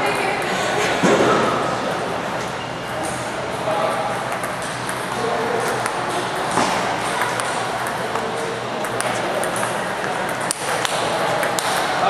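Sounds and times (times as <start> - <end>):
busy hall background noise: 0.0 - 12.0
table tennis ball ticking: 3.8 - 11.9.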